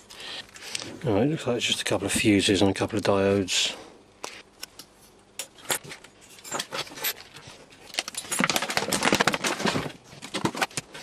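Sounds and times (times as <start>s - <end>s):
plastic tube rattling and scraping: 6.6s - 11.0s.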